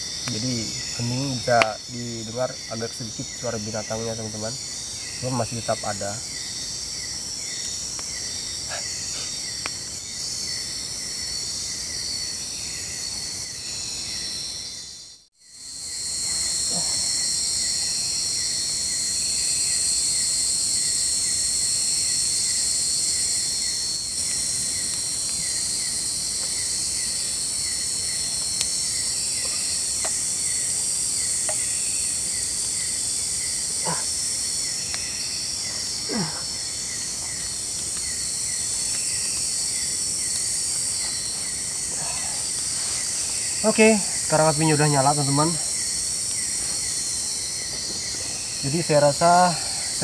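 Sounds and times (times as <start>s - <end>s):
insect chirping: 0.0s - 50.0s
insects buzzing: 0.0s - 50.0s.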